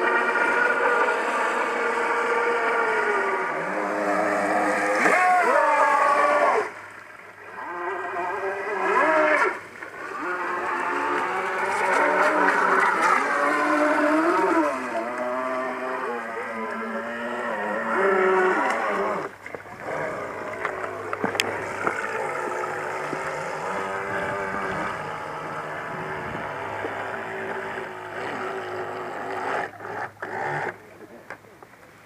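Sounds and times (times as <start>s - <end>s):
electric boat motor whining: 0.0s - 30.8s.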